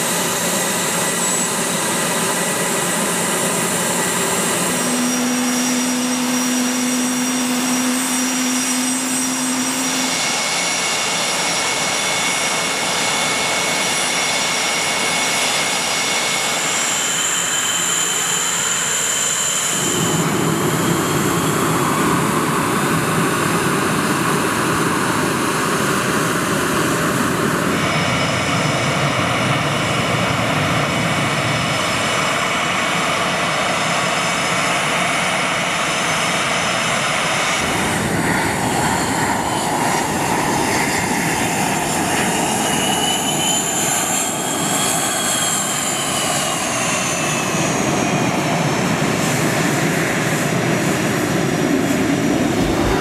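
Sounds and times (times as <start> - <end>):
jet engines whining: 0.0 - 53.0
high whine rising and falling: 1.0 - 11.1, 52.3 - 53.0.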